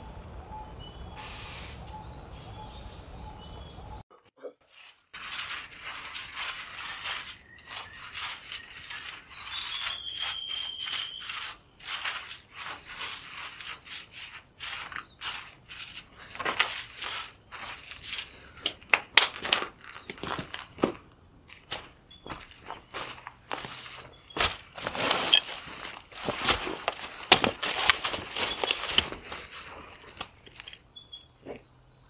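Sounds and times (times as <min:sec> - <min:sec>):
bird whistling: 0:00.5 - 0:04.0, 0:08.6 - 0:11.5, 0:31.0 - 0:31.4
crunching steps on grit: 0:04.8 - 0:30.8
hand brushing ash on rock: 0:05.1 - 0:18.4.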